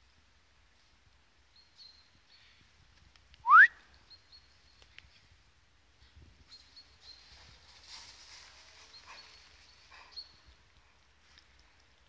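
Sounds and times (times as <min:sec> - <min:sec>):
person whistling rising note: 0:03.4 - 0:03.7.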